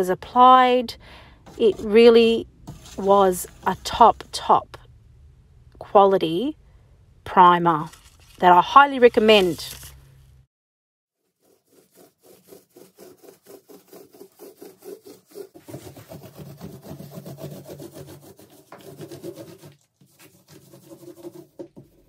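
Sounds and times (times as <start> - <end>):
paint roller rubbing strokes: 1.5 - 4.4, 11.2 - 22.0.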